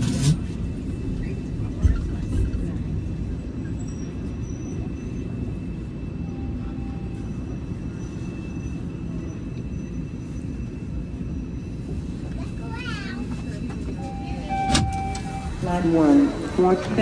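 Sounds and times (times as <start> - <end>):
subway train rumbling: 0.0 - 17.0.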